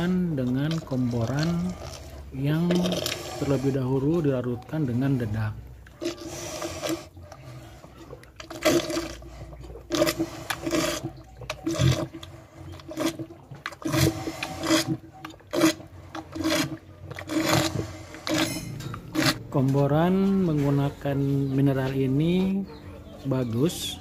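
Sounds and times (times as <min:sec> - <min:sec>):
cow slurping from bucket: 0:00.0 - 0:22.6.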